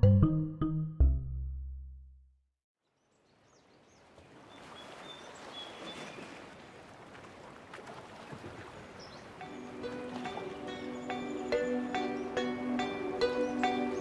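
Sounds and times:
steady outdoor hiss: 9.2s - 14.0s.

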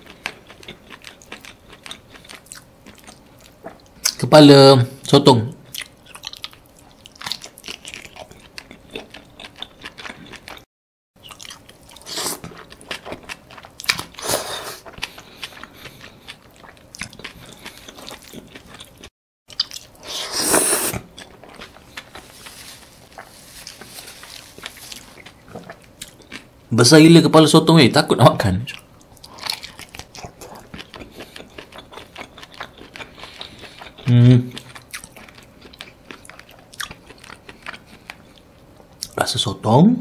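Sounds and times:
wet squishy chewing: 20.9s - 26.5s, 28.8s - 39.2s.

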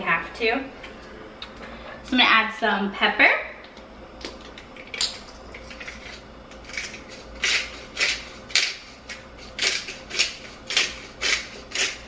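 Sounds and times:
pepper grinder crunching: 4.2s - 12.0s.

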